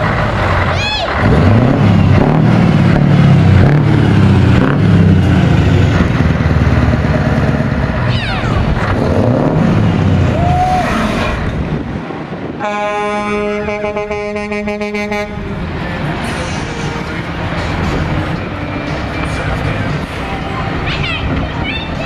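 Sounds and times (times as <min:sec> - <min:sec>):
diesel truck accelerating: 0:00.0 - 0:22.0
truck horn: 0:12.6 - 0:15.6.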